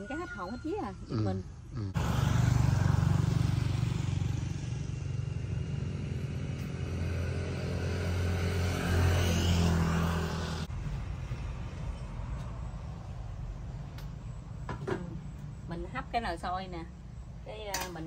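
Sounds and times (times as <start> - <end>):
small motorcycle engine running: 1.8 - 10.6.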